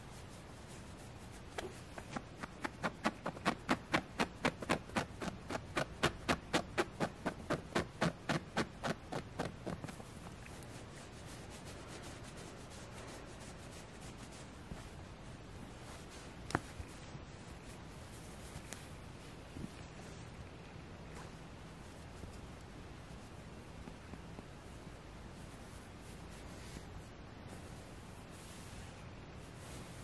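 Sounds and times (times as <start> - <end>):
fingernails scratching plush fabric: 0.6 - 15.0.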